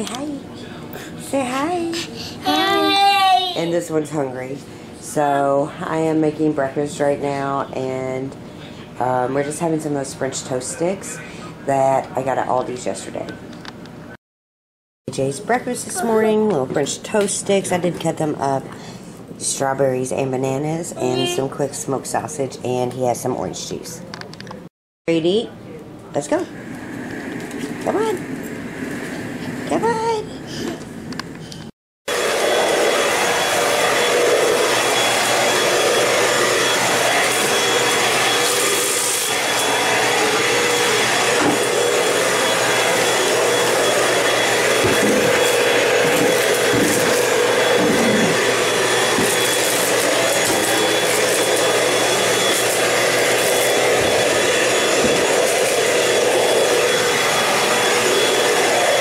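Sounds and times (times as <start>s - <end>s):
vacuum cleaner running: 0.0s - 13.3s, 26.3s - 31.2s, 32.1s - 59.0s.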